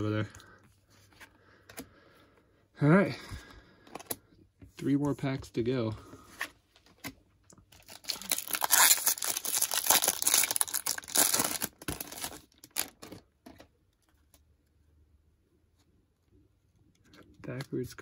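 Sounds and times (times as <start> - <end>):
card pack wrapper tearing and crinkling: 7.7 - 13.2.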